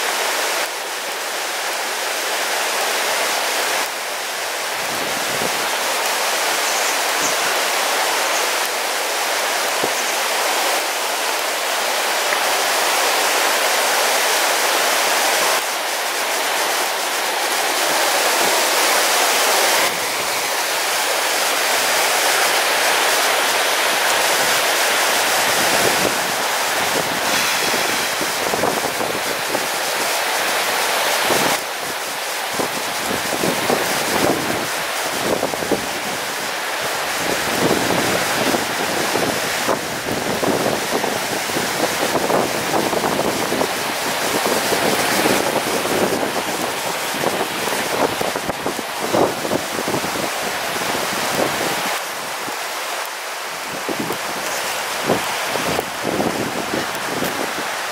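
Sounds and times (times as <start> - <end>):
river rushing over boulders: 0.0 - 57.9
wind buffeting microphone: 23.8 - 30.2, 31.2 - 52.4, 53.6 - 57.9.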